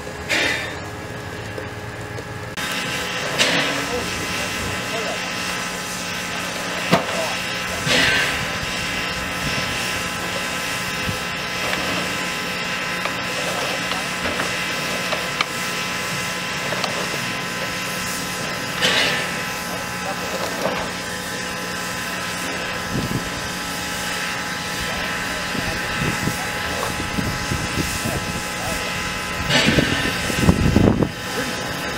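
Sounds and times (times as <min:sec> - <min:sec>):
machine hum with whine: 0:00.0 - 0:31.9.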